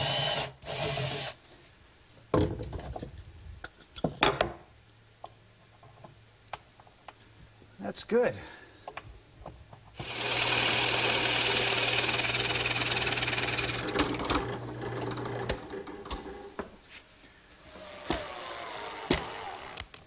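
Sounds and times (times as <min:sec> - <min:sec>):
drill press motor hum: 0:10.0 - 0:16.5, 0:17.7 - 0:19.9.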